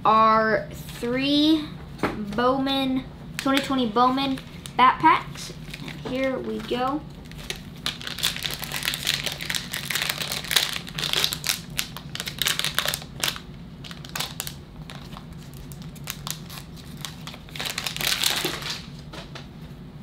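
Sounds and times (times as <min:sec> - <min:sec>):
wrapper tearing and crinkling: 0:05.5 - 0:19.0.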